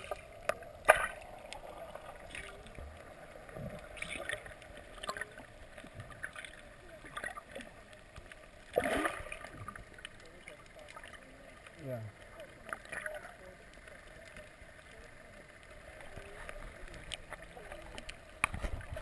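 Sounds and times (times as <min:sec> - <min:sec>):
gush of water and bubbles: 0:00.0 - 0:13.4
muffled underwater hiss: 0:00.0 - 0:19.0
small clicks and bubbles: 0:00.0 - 0:19.0.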